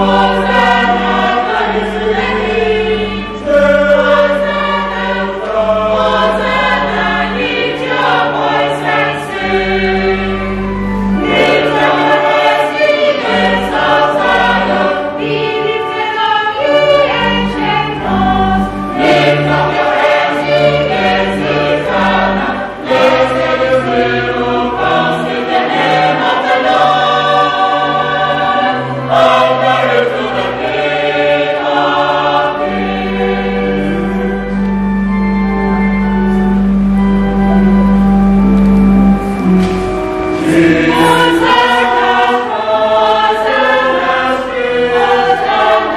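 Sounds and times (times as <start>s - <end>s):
choir singing in parts: 0.0s - 35.2s, 38.4s - 45.9s
low bass notes: 32.7s - 42.2s.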